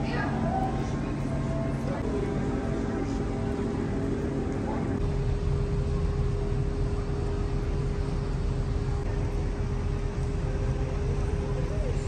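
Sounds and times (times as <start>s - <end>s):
constant mid-pitched hum: 0.0s - 12.0s
low rumble of city noise: 0.0s - 12.0s.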